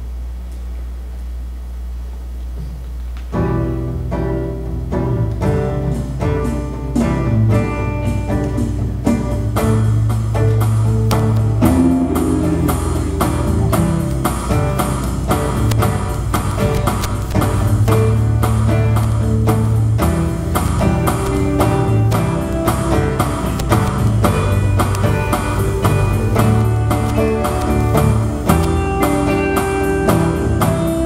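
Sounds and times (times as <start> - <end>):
live band playing: 3.5 - 31.0
low hum: 10.4 - 31.0.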